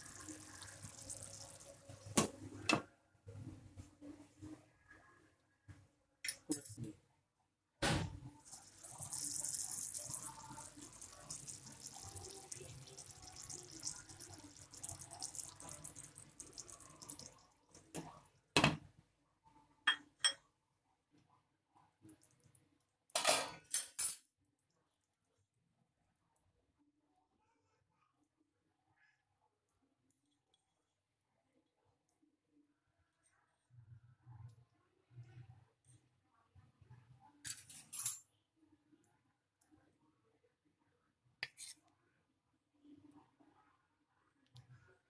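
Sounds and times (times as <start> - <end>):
cooking hiss: 0.0 - 2.7, 8.3 - 18.1.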